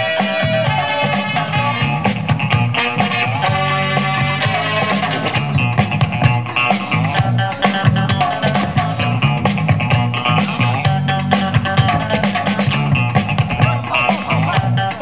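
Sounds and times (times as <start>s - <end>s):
loud music with drum beat: 0.0s - 15.0s.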